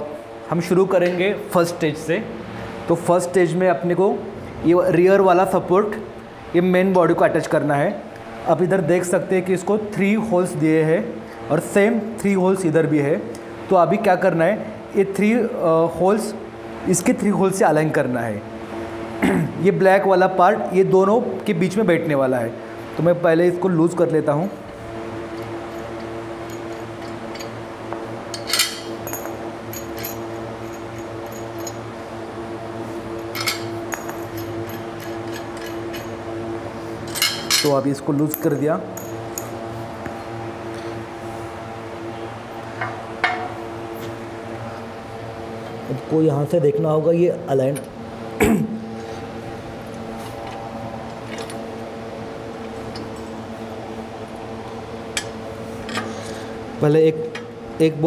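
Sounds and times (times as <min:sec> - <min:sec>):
steady low hum: 0:00.0 - 0:58.0
bolts clinking on steel plates: 0:28.3 - 0:31.9, 0:33.2 - 0:36.2, 0:37.0 - 0:39.6, 0:42.8 - 0:43.6.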